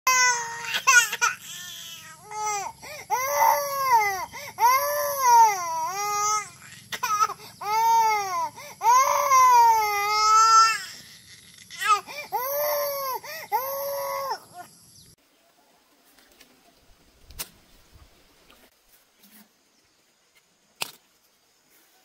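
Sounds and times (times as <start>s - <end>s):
baby crying hard: 0.1s - 14.4s.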